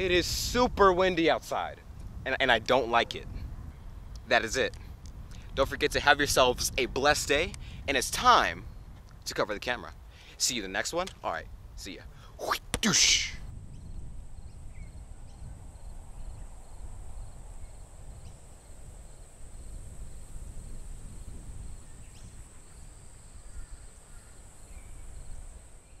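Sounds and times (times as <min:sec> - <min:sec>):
wind rumble on microphone: 0:00.0 - 0:26.0
faint chirping: 0:13.7 - 0:26.0.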